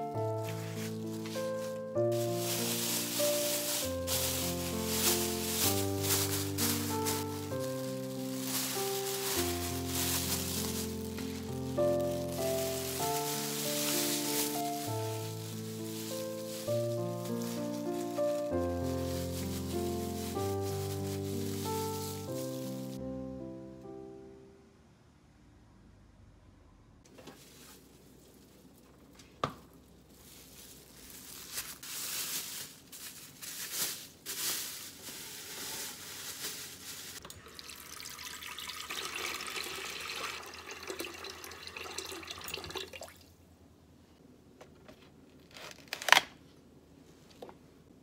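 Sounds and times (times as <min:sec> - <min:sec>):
plastic bag crinkling: 0:00.0 - 0:23.0, 0:27.2 - 0:37.3
water running into a pot: 0:37.2 - 0:43.2.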